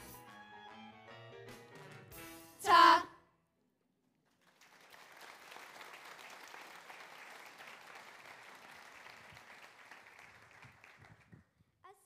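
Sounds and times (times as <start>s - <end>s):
audience applauding: 4.3s - 11.4s.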